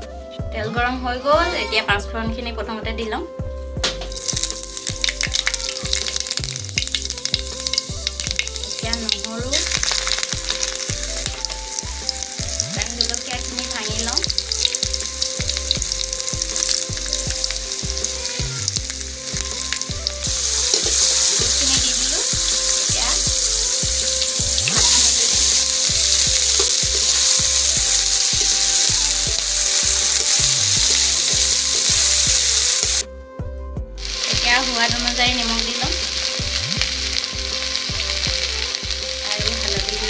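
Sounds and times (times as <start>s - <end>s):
low regular beat: 3.4s - 40.0s
oil sizzling in a wok: 4.0s - 33.0s, 34.0s - 40.0s
metal spatula stirring: 18.7s - 32.9s.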